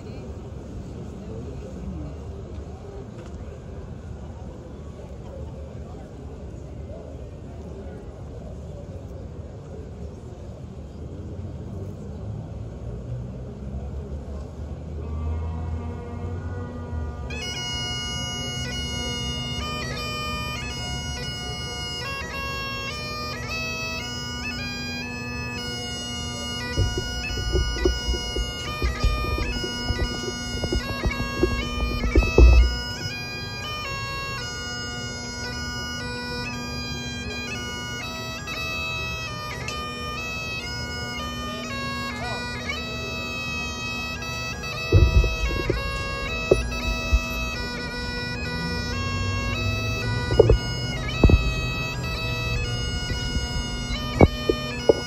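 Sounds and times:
bagpipes playing slow tune: 14.9 - 55.0
microphone rumbling: 26.6 - 33.0, 44.9 - 47.7, 49.9 - 55.0.

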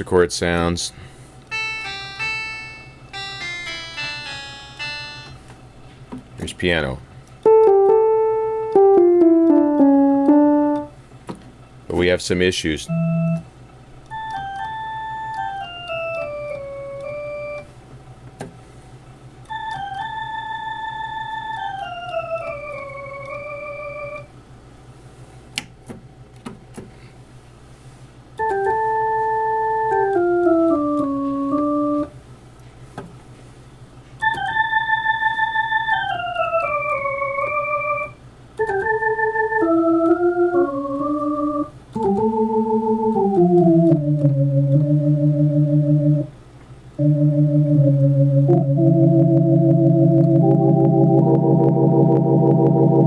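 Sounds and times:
low electrical hum: 0.0 - 53.0
electronic organ playing: 1.5 - 5.5, 7.4 - 11.0, 12.8 - 13.5, 14.1 - 17.7, 19.5 - 24.3, 28.4 - 32.2, 34.2 - 46.3, 47.0 - 53.0.

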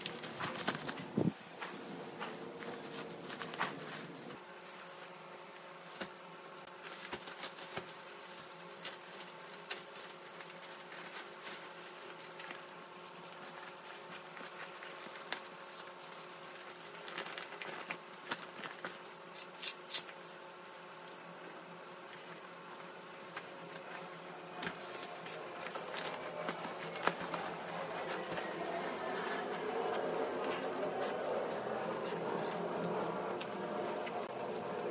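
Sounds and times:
bag and plastic rustling: 0.0 - 5.2, 5.8 - 20.0, 21.8 - 34.9
steady low hum: 0.0 - 34.9.

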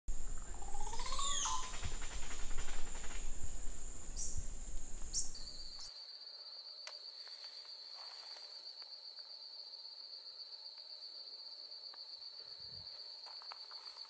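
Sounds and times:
wind rumble on microphone: 0.1 - 5.8
high insect-like trill: 0.1 - 14.0
whistled bird calls: 0.3 - 3.4.

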